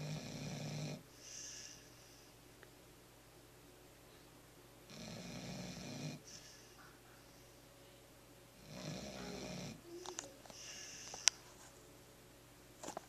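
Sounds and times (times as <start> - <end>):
puppy snoring: 0.0 - 1.8, 4.9 - 6.9, 8.6 - 11.3.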